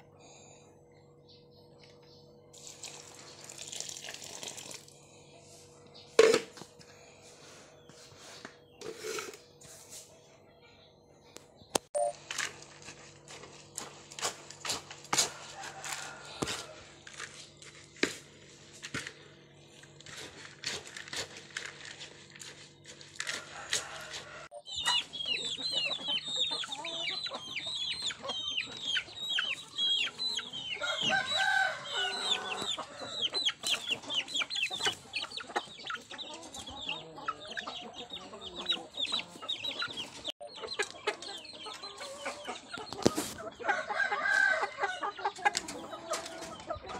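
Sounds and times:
chickens peeping and clucking: 0.0s - 3.5s, 4.9s - 46.9s
spoon scraping plastic bucket: 8.8s - 10.0s, 20.0s - 24.4s.

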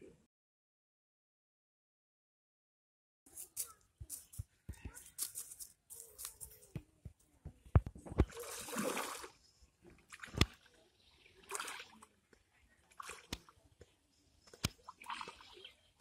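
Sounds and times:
water sloshing and splashing: 8.2s - 9.4s, 10.0s - 12.2s, 12.9s - 13.5s, 14.7s - 15.8s.

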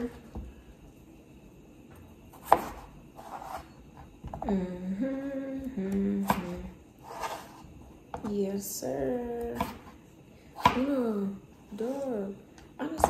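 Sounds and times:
woman humming: 4.4s - 6.8s.

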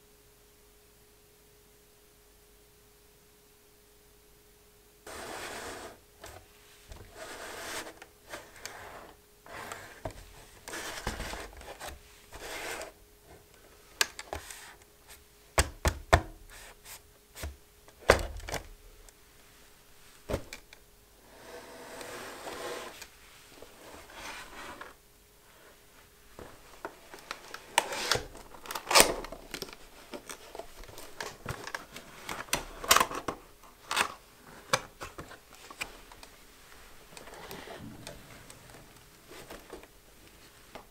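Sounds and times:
cardboard rubbing and scraping: 5.1s - 6.4s, 7.0s - 13.0s, 21.3s - 23.0s, 23.7s - 25.0s.

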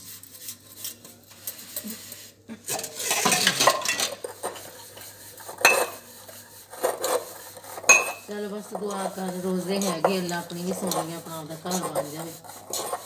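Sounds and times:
steel pots and plates clattering: 2.5s - 6.1s, 6.7s - 13.0s.

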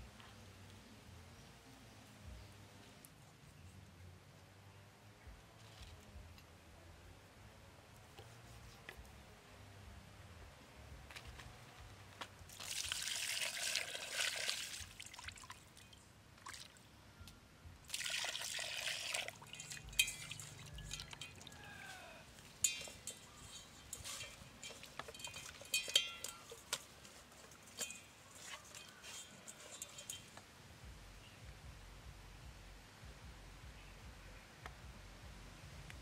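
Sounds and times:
water pouring into steel bowl: 12.5s - 15.9s, 17.9s - 21.4s
wet squelches of washing chicken: 12.5s - 16.8s, 17.9s - 21.9s.

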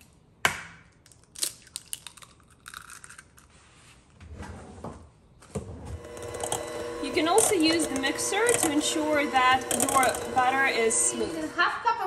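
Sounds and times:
egg cracking: 0.9s - 3.5s
eggshells crunching: 1.0s - 3.5s.

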